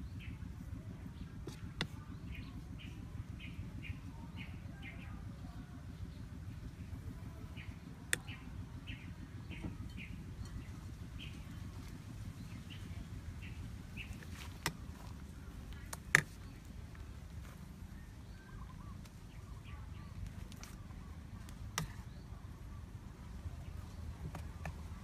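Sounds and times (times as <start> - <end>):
faint bird chirps: 0.0 - 14.5, 15.4 - 25.0
low outdoor rumble: 0.0 - 25.0.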